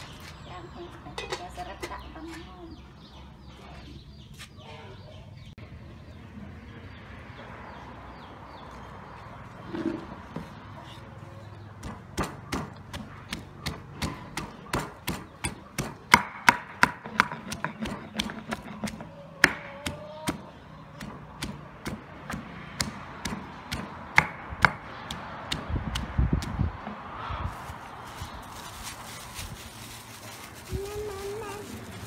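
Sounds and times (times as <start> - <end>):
pestle pounding in stone mortar: 11.8 - 20.4.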